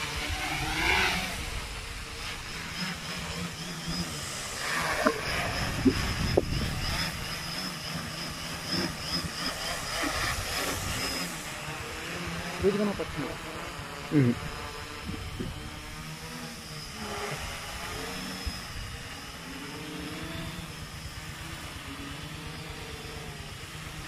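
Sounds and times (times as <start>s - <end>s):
quadcopter propellers whining: 0.0s - 24.0s.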